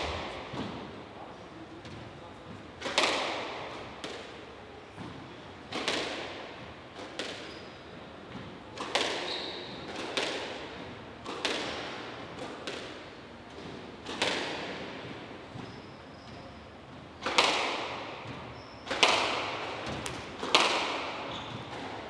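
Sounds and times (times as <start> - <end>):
squash ball hits echoing: 0.0 - 1.0, 2.8 - 4.4, 5.0 - 7.6, 8.3 - 15.7, 17.2 - 22.0.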